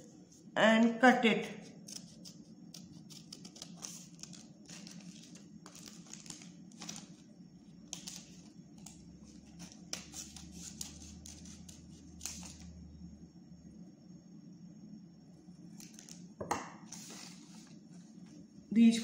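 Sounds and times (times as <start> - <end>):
scissors snipping paper: 1.9 - 7.0
paper rustling: 1.9 - 7.3, 16.9 - 17.8.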